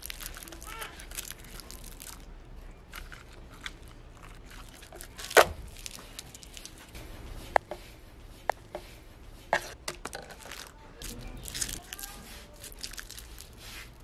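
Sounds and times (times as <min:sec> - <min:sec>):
foil wrappers crinkling: 0:00.0 - 0:07.7, 0:09.6 - 0:14.0.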